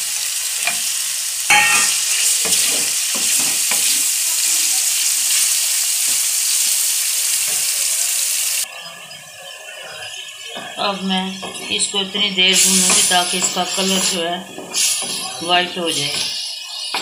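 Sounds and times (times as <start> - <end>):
chicken sizzling in hot oil: 0.0 - 10.5.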